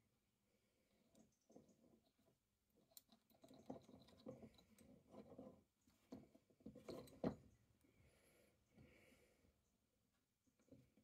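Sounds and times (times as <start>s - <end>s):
metal parts clicking and knocking: 1.1s - 7.4s.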